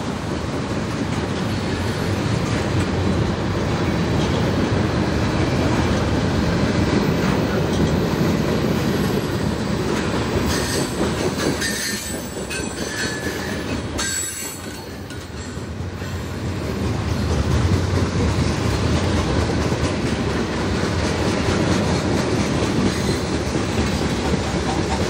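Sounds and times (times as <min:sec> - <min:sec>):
freight train wheels rumbling: 0:00.0 - 0:25.0
high wheel squeals: 0:10.5 - 0:11.0, 0:11.6 - 0:15.5.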